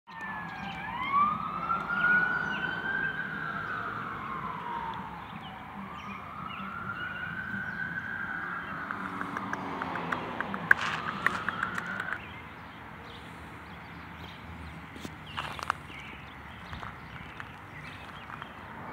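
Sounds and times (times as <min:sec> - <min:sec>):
emergency vehicle siren wailing: 0:00.1 - 0:12.2.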